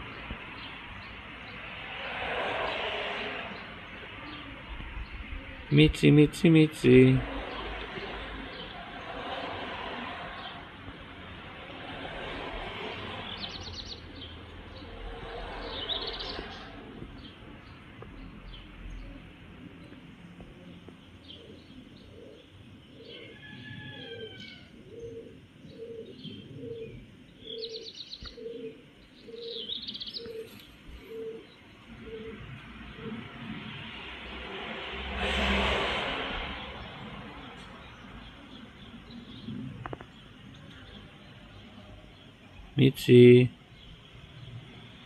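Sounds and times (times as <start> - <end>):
birds chirping: 0.0 - 11.9, 12.8 - 34.5, 36.4 - 45.0
broad rushing noise: 0.0 - 17.6, 31.9 - 40.2.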